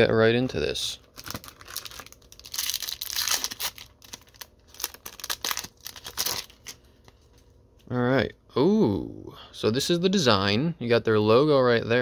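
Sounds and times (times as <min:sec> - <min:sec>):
foil wrapper tearing and crinkling: 0:01.1 - 0:06.8.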